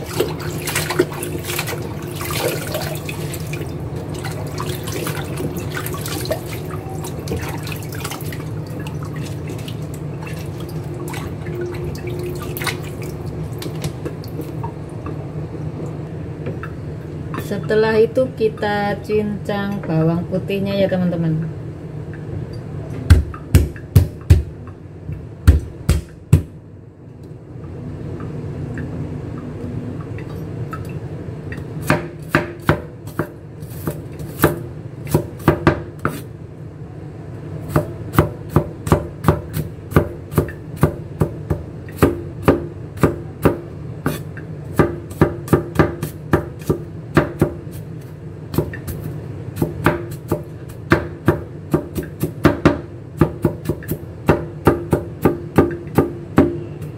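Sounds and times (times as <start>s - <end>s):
cleaver chopping on wooden board: 25.5s - 26.5s.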